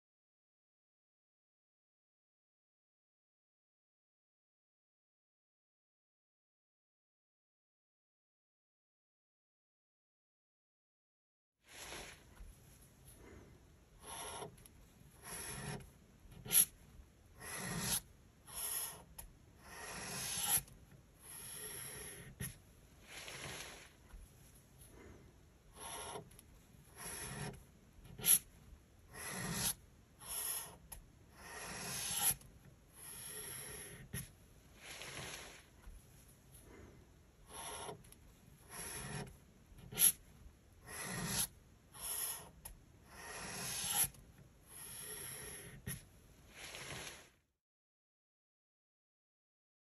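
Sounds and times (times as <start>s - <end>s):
pen scratching across paper: 11.7s - 47.4s.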